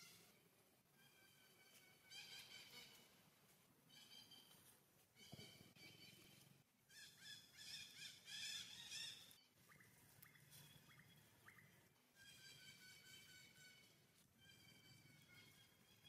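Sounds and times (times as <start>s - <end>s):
faint birds chirping: 3.9s - 16.0s.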